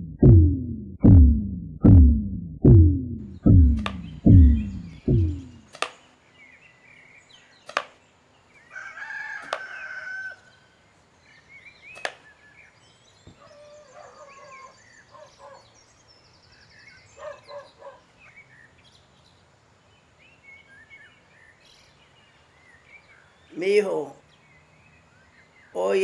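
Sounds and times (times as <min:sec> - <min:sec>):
sharp knocks: 0:00.0 - 0:06.0
small birds chirping: 0:03.2 - 0:26.0
rooster crowing: 0:08.7 - 0:10.6.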